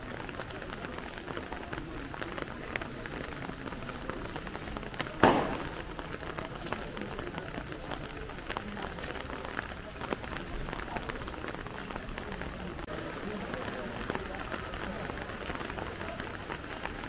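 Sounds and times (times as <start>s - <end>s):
rain falling: 0.0s - 17.0s
loud sharp bang: 5.2s - 5.8s.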